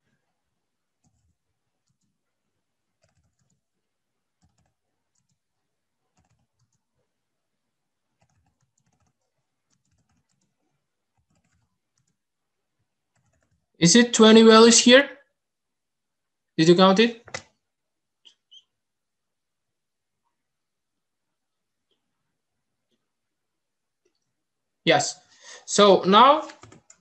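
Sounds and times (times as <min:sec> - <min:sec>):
faint typing on keyboard: 0:00.0 - 0:07.2, 0:08.0 - 0:13.8, 0:17.2 - 0:17.6, 0:26.4 - 0:27.0.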